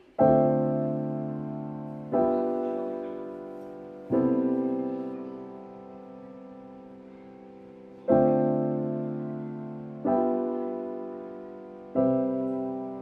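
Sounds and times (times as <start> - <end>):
sustained piano chords: 0.0 - 13.0.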